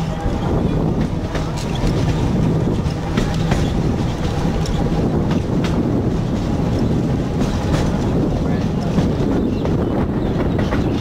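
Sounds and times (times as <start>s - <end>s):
tram rumbling: 0.0s - 11.0s
wheels clicking on rails: 0.0s - 11.0s.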